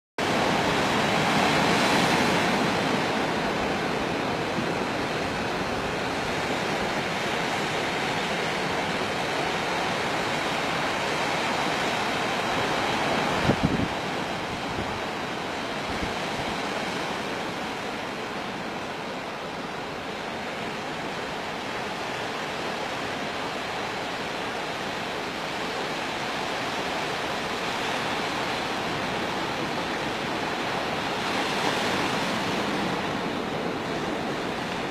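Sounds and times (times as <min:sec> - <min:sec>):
sea surf rushing: 0:00.2 - 0:34.9
wind on microphone: 0:00.2 - 0:34.9.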